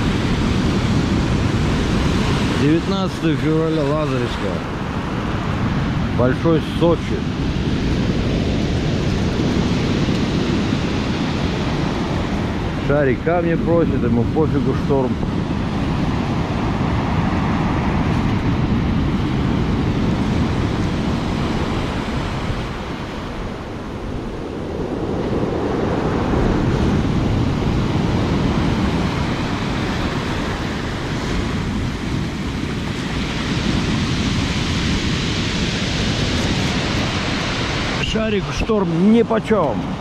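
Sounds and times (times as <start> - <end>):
wind rumbling on microphone: 0.0 - 40.0
surf breaking on pebble beach: 14.6 - 40.0.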